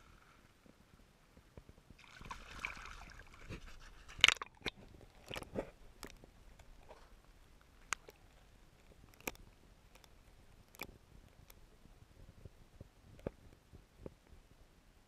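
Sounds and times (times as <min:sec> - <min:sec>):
shallow water splashing: 0:02.0 - 0:09.4
underwater clicks: 0:04.1 - 0:11.6.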